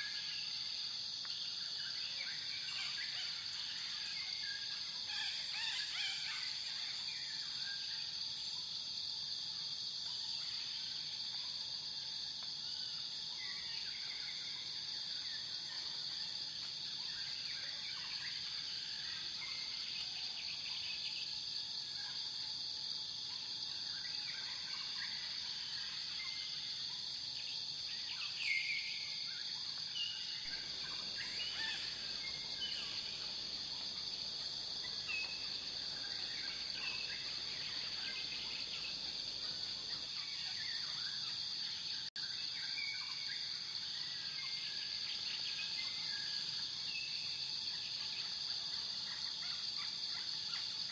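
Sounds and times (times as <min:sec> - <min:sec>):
high insect drone: 0:00.0 - 0:50.9
bird chirps: 0:30.0 - 0:40.1.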